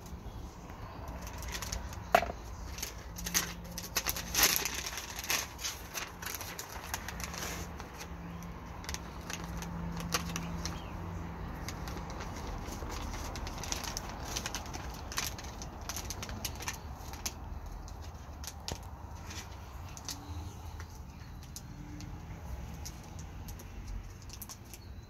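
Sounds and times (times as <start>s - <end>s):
plastic sheet crinkling: 0.8s - 24.9s
scissors cutting plastic: 1.1s - 10.8s.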